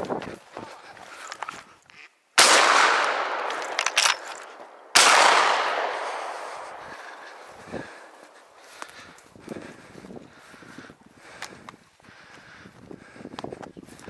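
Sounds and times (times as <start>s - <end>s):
shotgun shots echoing: 2.4s - 8.3s
sharp clicks: 2.6s - 6.0s.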